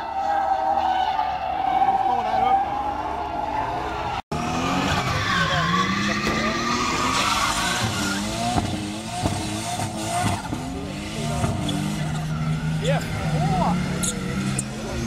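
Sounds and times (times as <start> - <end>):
tyres squealing on asphalt: 0.0 - 15.0
car engine revving hard: 4.3 - 15.0.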